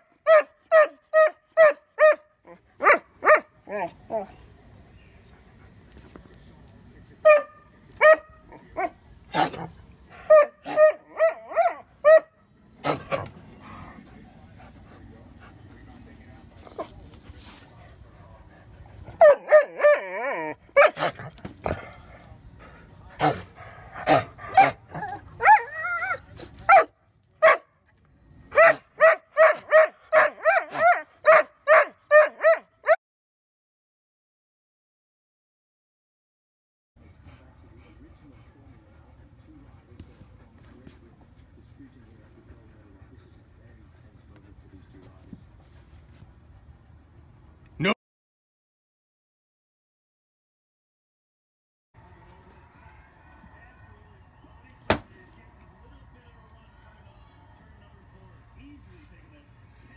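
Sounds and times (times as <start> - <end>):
dog barking and yipping: 0.0 - 3.9, 7.2 - 13.3, 19.2 - 21.3, 24.0 - 27.7, 28.5 - 33.0
dog whining: 24.5 - 26.8.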